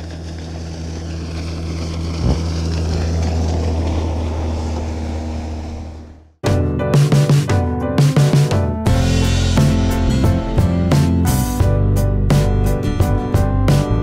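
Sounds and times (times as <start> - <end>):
outboard motor running: 0.0 - 6.4
water noise: 0.0 - 6.4
music: 6.4 - 14.0.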